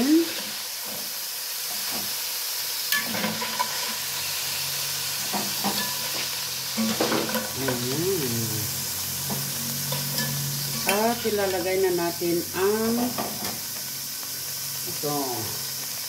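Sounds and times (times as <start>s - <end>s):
chicken sizzling in hot fat: 0.0s - 16.0s
utensils clinking and scraping pot: 2.9s - 4.0s, 5.2s - 8.2s, 9.2s - 11.7s.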